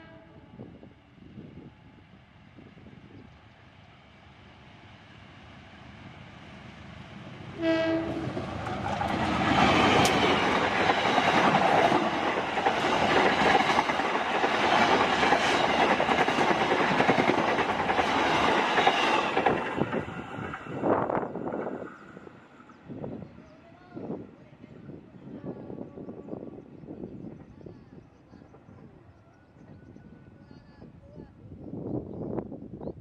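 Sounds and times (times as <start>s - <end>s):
train horn blast: 0.0s - 0.7s, 7.6s - 8.4s
train rushing past: 0.7s - 23.2s.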